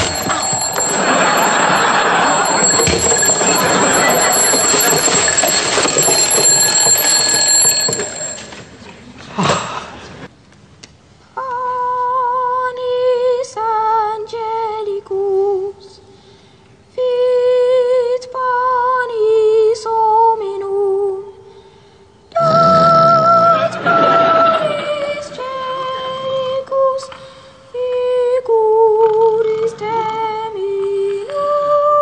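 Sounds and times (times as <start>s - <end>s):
boy singing a hymn: 11.4s - 16.0s, 17.0s - 21.4s, 22.4s - 32.0s.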